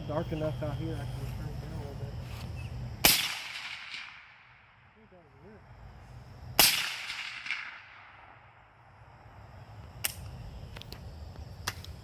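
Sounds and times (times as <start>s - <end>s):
rifle shot: 3.0s - 4.8s, 6.6s - 8.6s.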